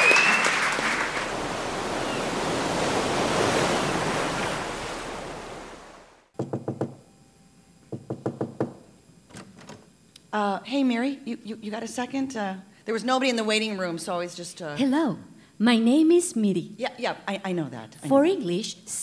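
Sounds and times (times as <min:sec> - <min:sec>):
audience applause: 0:00.0 - 0:02.6
sharp knocks on a door: 0:06.4 - 0:07.0, 0:07.9 - 0:08.9.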